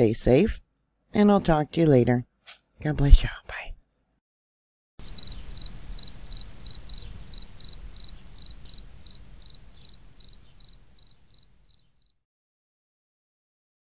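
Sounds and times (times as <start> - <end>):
cricket chirping: 5.0 - 12.2.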